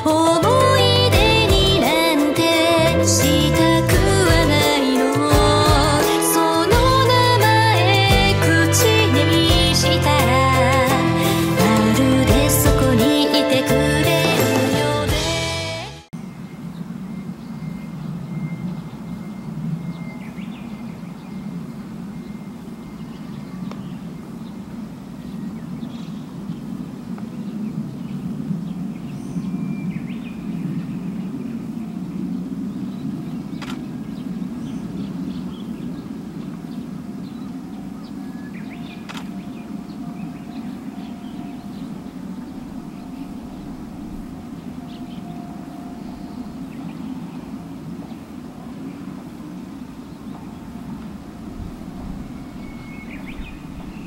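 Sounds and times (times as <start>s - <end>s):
low outdoor rumble: 0.0s - 1.9s, 2.7s - 4.7s
bird chirps: 16.2s - 24.6s, 32.2s - 49.2s, 51.8s - 54.0s
sharp clicks: 33.6s - 33.8s, 39.1s - 39.3s.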